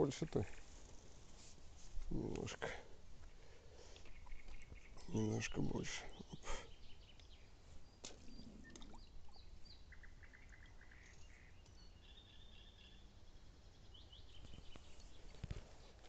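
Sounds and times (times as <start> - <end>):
songbirds chirping and trilling: 0.0 - 16.0.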